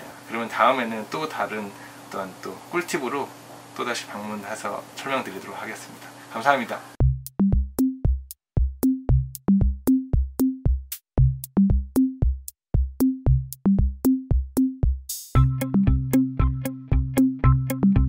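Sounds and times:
bass and synth chords: 7.0s - 18.0s
drum-machine beat: 7.0s - 18.0s.

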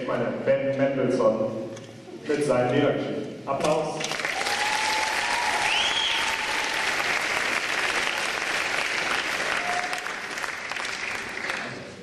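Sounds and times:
audience applauding: 4.0s - 12.0s
person whistling: 5.7s - 6.3s.

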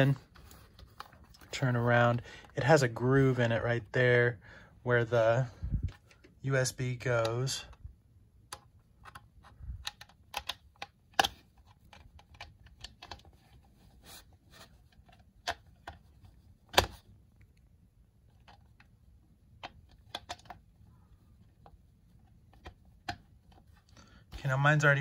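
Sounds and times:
cable clicking into plastic: 7.2s - 13.4s, 19.5s - 20.7s, 21.3s - 24.0s.

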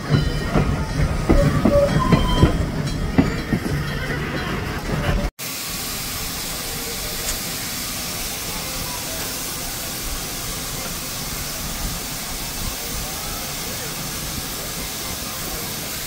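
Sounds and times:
steam locomotive rumbling past: 0.0s - 16.0s
steam hissing: 5.4s - 16.0s.

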